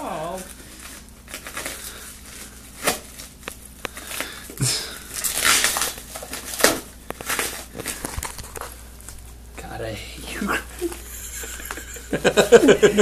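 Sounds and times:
plastic wrap crinkling and tearing: 0.0s - 9.3s.

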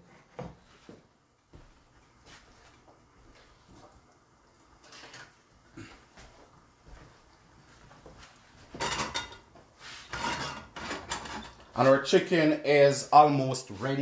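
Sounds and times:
frying pan scraping on stove: 8.6s - 11.9s
kitchen handling noises: 8.6s - 12.1s.

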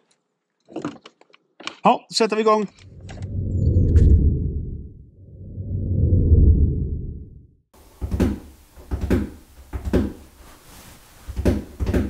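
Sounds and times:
low whooshing rumble: 2.8s - 7.7s.

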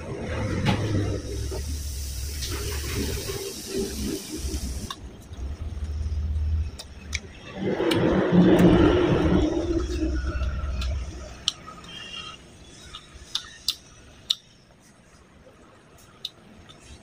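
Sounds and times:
loud low rumble with rushing: 5.3s - 11.5s.

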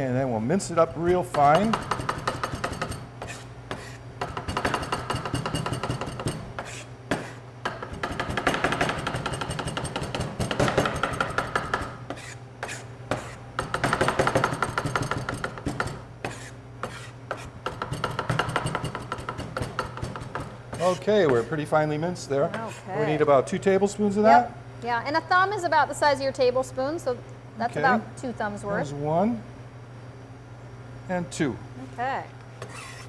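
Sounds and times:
knife chopping on cutting board: 0.9s - 21.5s.

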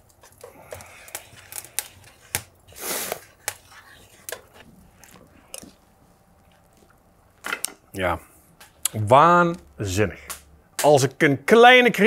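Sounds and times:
short hiss: 2.7s - 3.3s.

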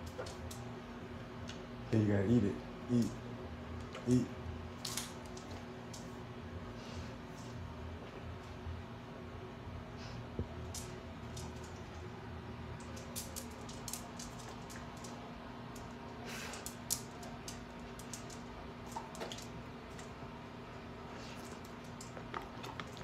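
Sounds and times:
dog chewing celery: 21.2s - 23.0s.

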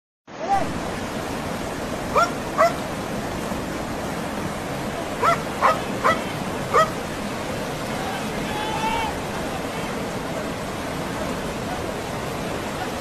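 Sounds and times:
rushing floodwater: 0.3s - 13.0s.

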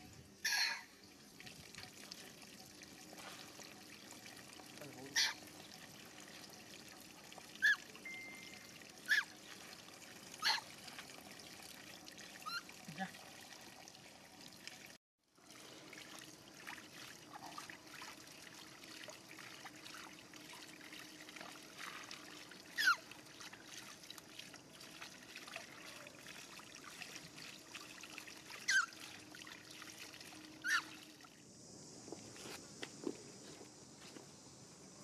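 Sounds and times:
water trickling and sloshing: 0.0s - 33.4s
short high squeaks: 7.6s - 9.3s, 30.6s - 31.0s.

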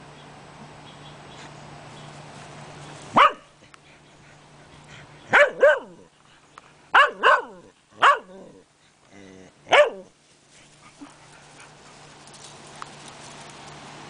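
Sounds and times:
dog barking: 3.2s - 3.5s, 5.3s - 6.1s, 6.9s - 8.5s, 9.7s - 10.1s.

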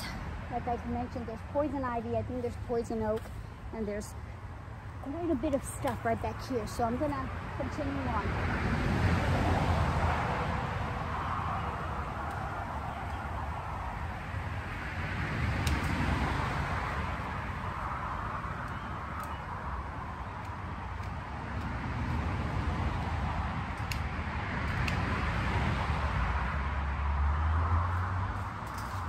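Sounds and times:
stems snapping: 15.6s - 16.1s, 20.4s - 25.2s.

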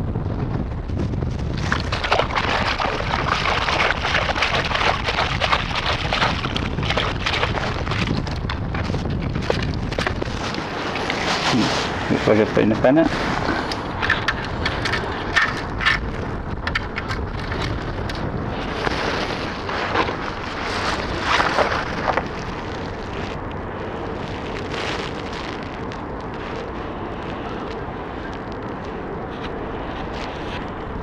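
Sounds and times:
wind buffeting microphone: 0.0s - 31.0s
wet sand rattling in metal scoop: 1.6s - 22.2s.

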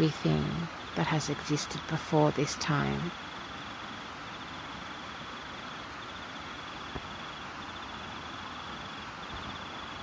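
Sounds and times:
insect high pulsing trill: 0.0s - 10.0s
steady hiss: 0.0s - 10.0s.

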